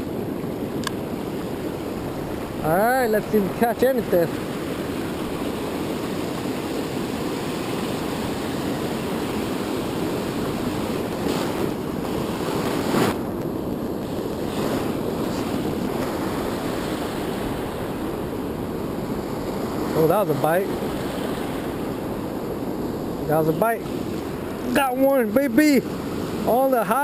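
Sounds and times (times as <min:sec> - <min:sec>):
ocean surf on sandy beach: 0:00.0 - 0:27.0.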